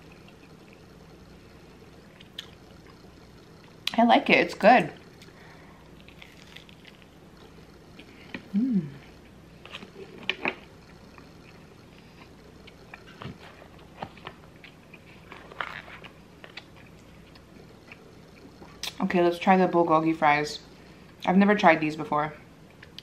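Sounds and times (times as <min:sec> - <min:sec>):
close chewing: 0:05.0 - 0:08.1
person humming mm: 0:08.4 - 0:09.1.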